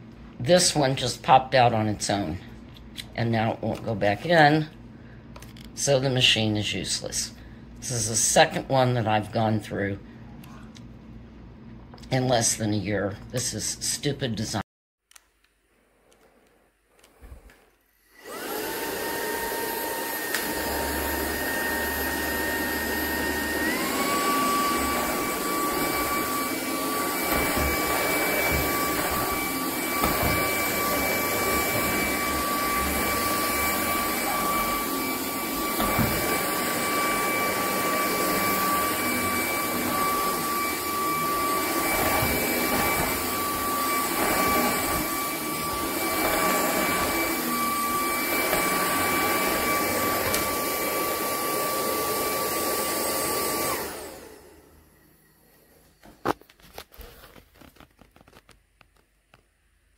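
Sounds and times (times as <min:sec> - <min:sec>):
vacuum cleaner whining: 0:17.0 - 0:58.4
vacuum motor winding down: 0:17.9 - 0:55.2.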